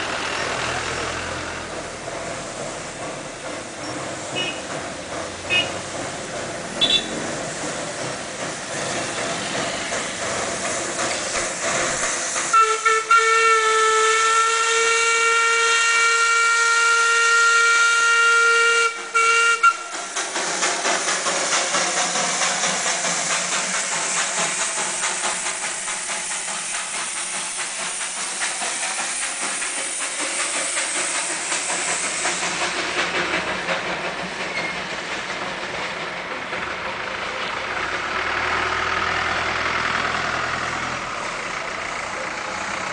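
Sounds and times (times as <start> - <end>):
steam locomotive hissing steam: 0.0 - 42.9
steam whistle blast: 12.5 - 19.9.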